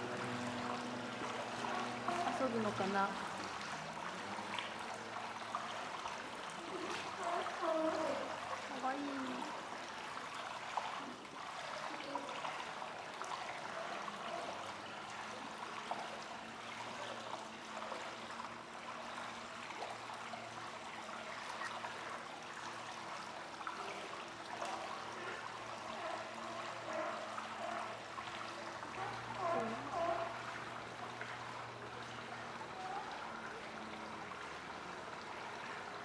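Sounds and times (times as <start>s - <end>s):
trickling water: 0.0s - 36.0s.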